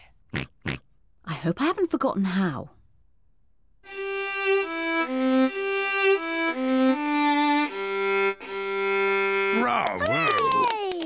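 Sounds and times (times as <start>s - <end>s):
violin melody: 3.9s - 10.0s.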